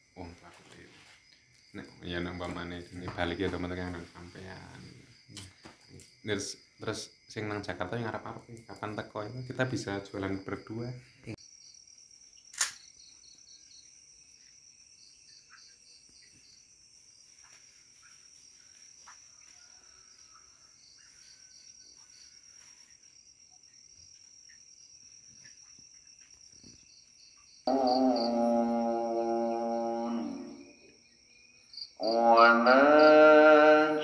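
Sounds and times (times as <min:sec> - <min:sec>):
crickets chirping: 0:00.0 - 0:34.0
sharp click: 0:12.5 - 0:12.8.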